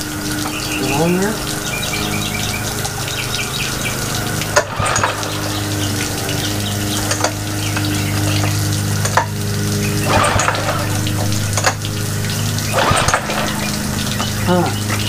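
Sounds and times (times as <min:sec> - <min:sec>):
running water hiss: 0:00.0 - 0:15.0
outboard motor idling: 0:01.4 - 0:15.0
tools knocking on motor: 0:04.6 - 0:05.8, 0:12.7 - 0:14.4.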